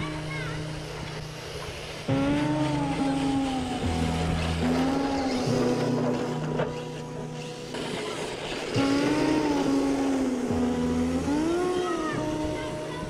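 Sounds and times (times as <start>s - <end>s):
electric motors whining: 0.7s - 12.5s.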